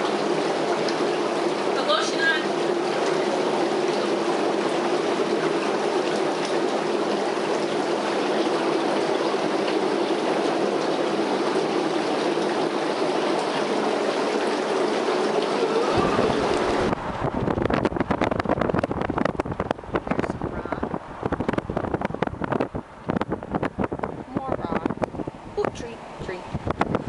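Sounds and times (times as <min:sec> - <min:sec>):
bathtub jets churning water: 0:00.0 - 0:27.0
wind rumble on microphone: 0:15.9 - 0:27.0.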